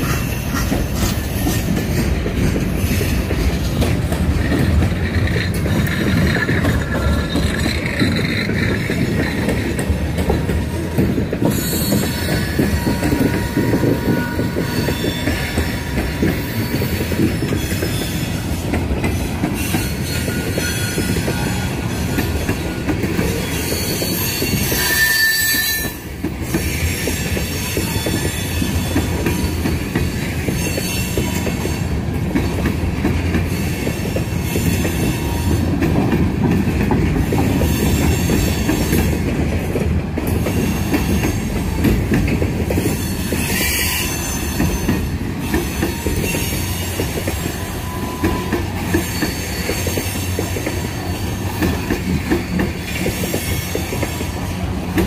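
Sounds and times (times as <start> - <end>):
train wheels rumbling on rails: 0.0 - 55.0
high-pitched wheel squeal: 11.4 - 18.7, 19.6 - 26.0, 42.9 - 51.2.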